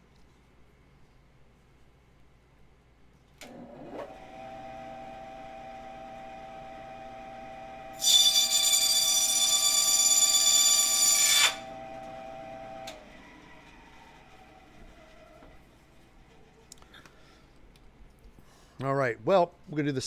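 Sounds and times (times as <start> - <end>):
bandsaw running hum: 3.8 - 13.2
saw blade screeching through metal: 8.0 - 11.7.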